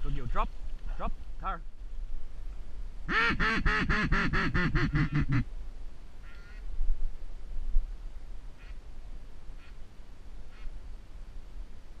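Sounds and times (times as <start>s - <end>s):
duck quacking: 3.1s - 5.4s.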